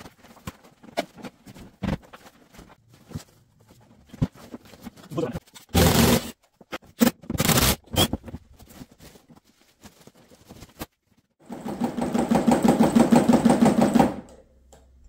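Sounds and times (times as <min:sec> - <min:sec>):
parts clicking and knocking: 0:13.8 - 0:15.0.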